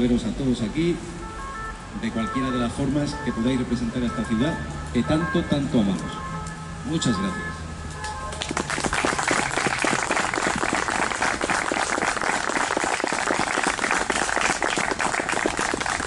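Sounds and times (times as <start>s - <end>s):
crowd clapping: 8.3s - 16.0s.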